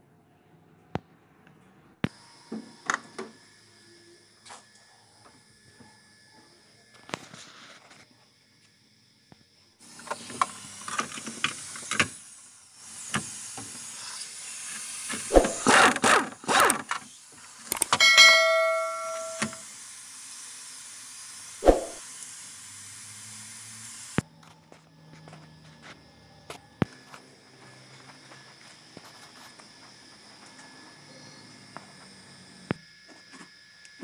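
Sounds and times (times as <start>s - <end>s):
impact wrench air hiss: 9.8s - 15.8s, 18.4s - 24.2s
impact wrench hammering blows: 15.3s - 16.6s, 17.9s - 19.6s
high ringing tone: 17.9s - 19.7s.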